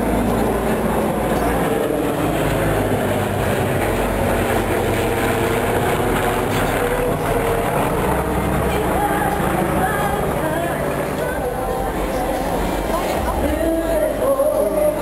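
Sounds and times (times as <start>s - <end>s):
propeller plane flying overhead: 0.0s - 15.0s.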